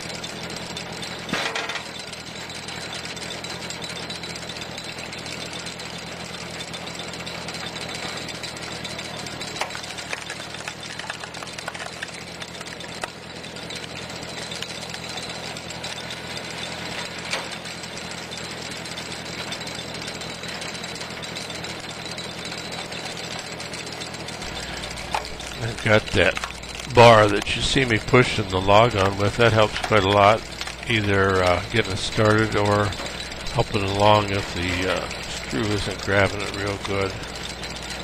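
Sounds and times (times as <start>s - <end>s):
tractor engine running: 0.0s - 38.0s
wood cracking: 8.7s - 17.6s, 21.5s - 38.0s.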